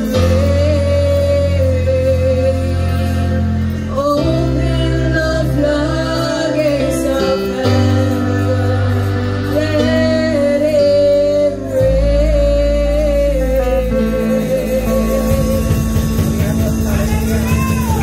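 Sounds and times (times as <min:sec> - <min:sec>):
live band: 0:00.0 - 0:18.0
sustained keyboard chords: 0:00.0 - 0:18.0
women singing gospel song: 0:03.9 - 0:15.7.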